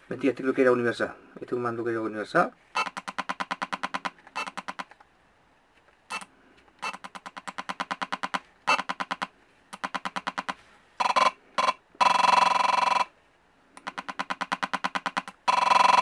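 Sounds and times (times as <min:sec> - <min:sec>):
rapid electronic ticking: 0:02.8 - 0:05.0, 0:06.8 - 0:13.1, 0:13.8 - 0:16.0.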